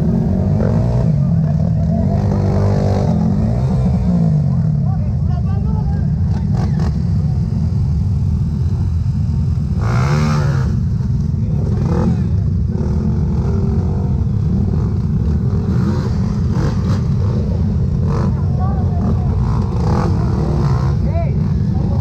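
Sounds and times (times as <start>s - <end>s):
dirt bike engine revving: 0.0s - 4.9s, 9.5s - 22.0s.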